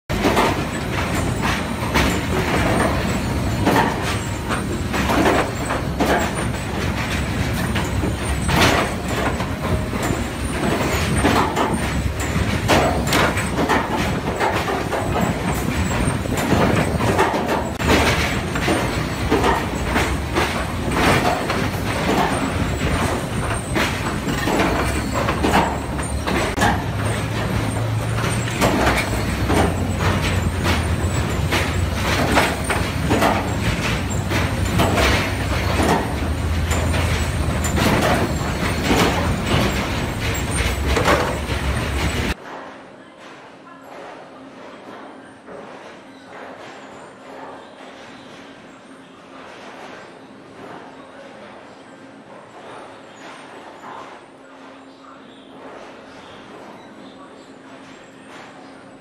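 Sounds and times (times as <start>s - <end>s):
logs clattering on steel decks: 0.1s - 42.4s
low machine hum: 0.1s - 42.4s
sawmill machinery din: 0.1s - 42.4s.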